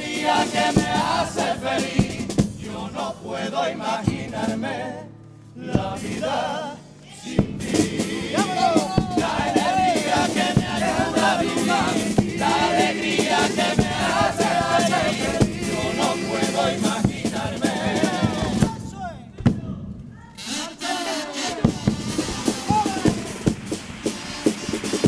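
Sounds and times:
bass drum and snare drum: 0.0s - 3.2s, 3.8s - 4.7s, 5.7s - 6.4s, 7.3s - 25.0s
male chorus singing: 0.0s - 18.9s.

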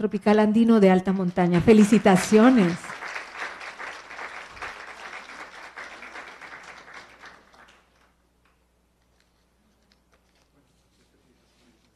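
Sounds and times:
audience applauding: 1.6s - 8.2s.

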